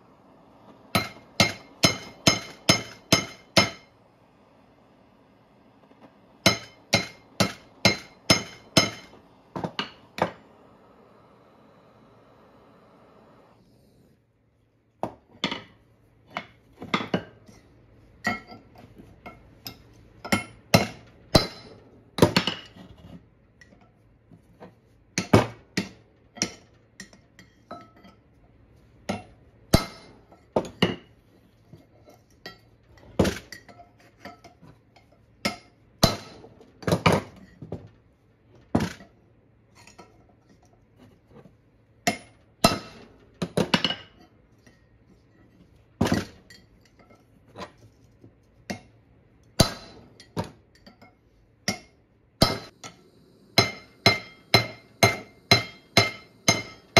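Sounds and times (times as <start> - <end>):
hammer striking metal chisel: 0.9 - 3.9, 6.4 - 10.4, 19.3 - 22.7, 29.1 - 31.0, 42.1 - 43.1, 49.6 - 51.1, 51.7 - 56.9.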